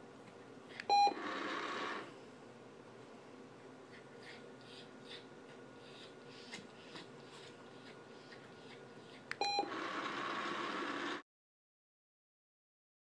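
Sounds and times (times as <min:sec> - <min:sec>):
treat dispenser whirring: 0:00.9 - 0:02.1, 0:09.3 - 0:11.2.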